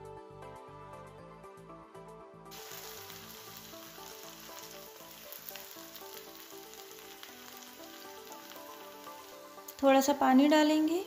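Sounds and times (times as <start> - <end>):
soft background music: 0.0 - 11.0
vegetables sizzling in oil: 2.5 - 11.0.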